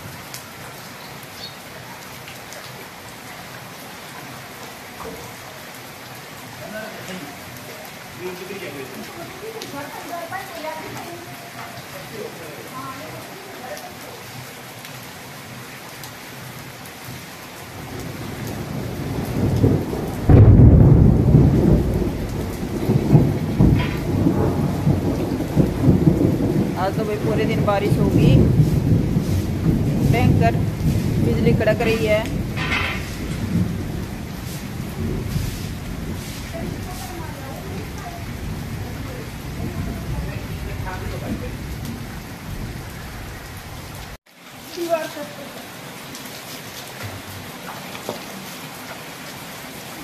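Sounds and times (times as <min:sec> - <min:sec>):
rain on pavement: 0:00.0 - 0:50.0
thunder rumbling and crashing: 0:17.8 - 0:44.2.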